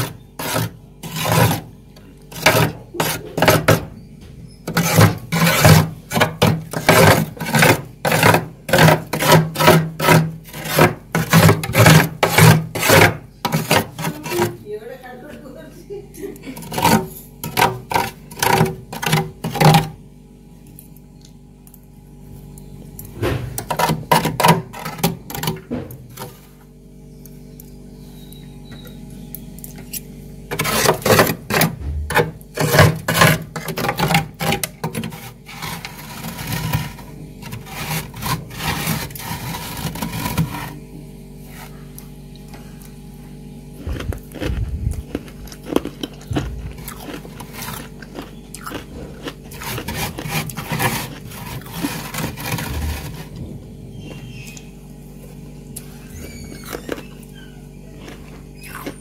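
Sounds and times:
spoon scraping freezer frost: 0:00.0 - 0:14.7, 0:16.3 - 0:20.0, 0:23.2 - 0:26.6, 0:27.9 - 0:43.0, 0:43.7 - 0:59.0
low hum: 0:35.1 - 0:59.0.

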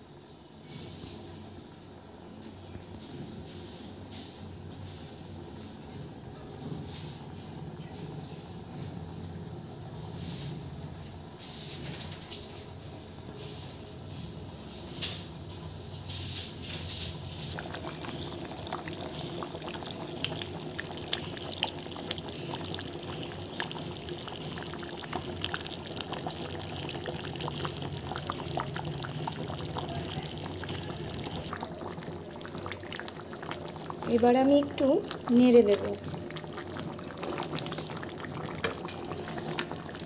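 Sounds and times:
gravy bubbling in a pan: 0:17.3 - 0:40.0.

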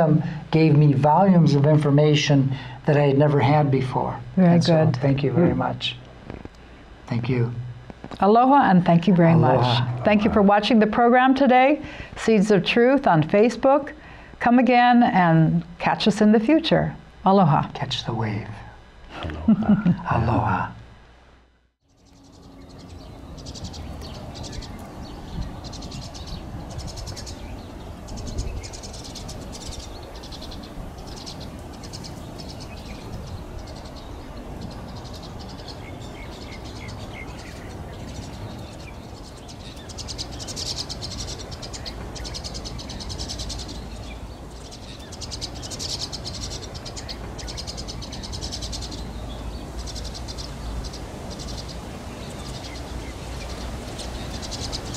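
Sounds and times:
steady low rumble: 0:00.4 - 0:13.3
small animals chirping and trilling: 0:21.8 - 0:54.9.

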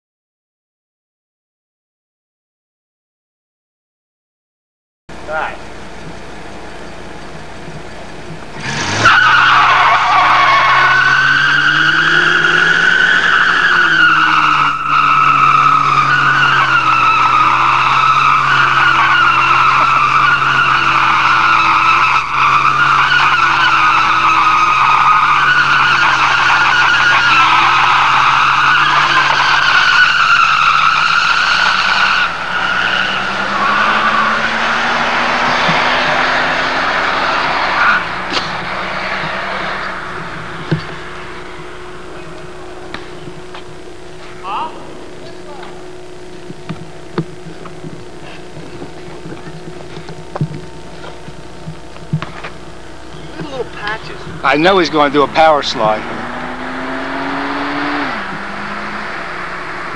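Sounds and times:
car engine revving: 0:05.1 - 0:59.9
tyres squealing: 0:08.4 - 0:45.8.

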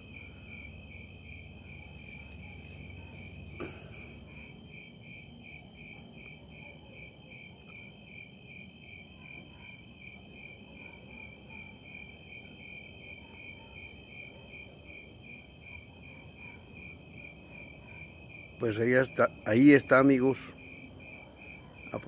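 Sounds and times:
crickets trilling: 0:00.0 - 0:22.0
pulsing cricket chirp: 0:00.0 - 0:22.0.

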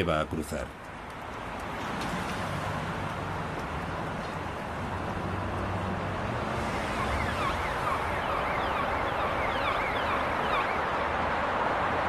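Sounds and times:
road traffic hum: 0:00.0 - 0:12.0
warbling siren tone: 0:06.7 - 0:11.1.

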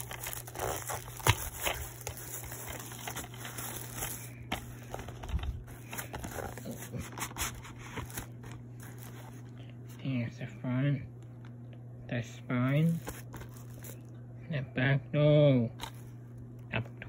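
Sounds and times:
plastic wrap crinkling: 0:00.0 - 0:09.6, 0:12.9 - 0:14.2.

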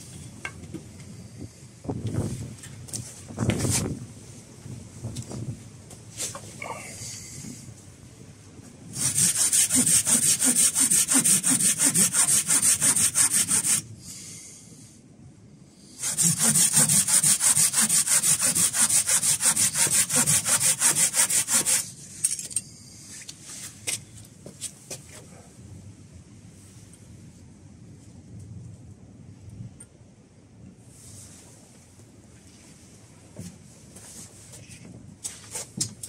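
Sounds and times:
hand saw cutting branch: 0:09.0 - 0:13.8, 0:16.0 - 0:21.9.

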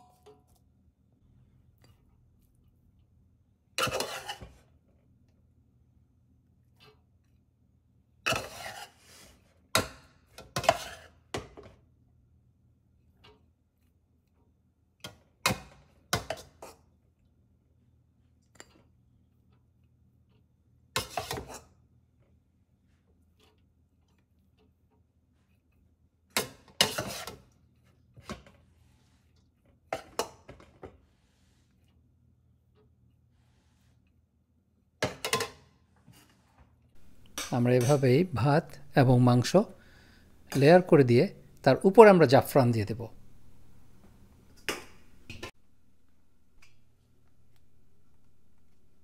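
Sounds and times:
bowl scraping rice in metal pot: 0:03.8 - 0:04.7, 0:08.3 - 0:09.5, 0:10.5 - 0:11.3, 0:26.5 - 0:27.6, 0:36.1 - 0:41.6.

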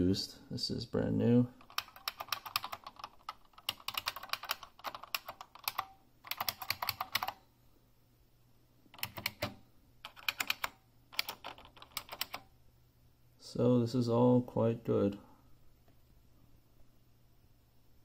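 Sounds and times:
clicky keyboard typing: 0:01.6 - 0:07.4, 0:08.9 - 0:12.5.

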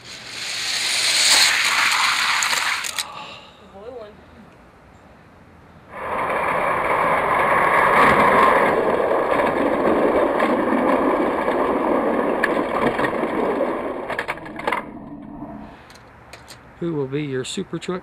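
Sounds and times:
toy trucks rattling on track: 0:00.0 - 0:03.0.

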